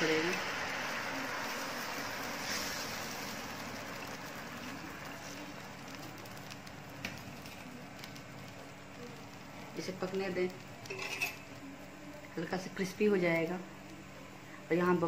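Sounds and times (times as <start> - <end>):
batter sizzling in hot oil: 0.0 - 15.0
ladle clicking on pan: 10.8 - 11.6.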